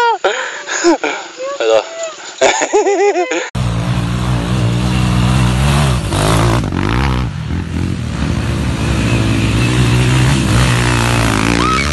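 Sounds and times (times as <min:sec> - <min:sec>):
dirt bike engines revving: 0:03.5 - 0:11.9.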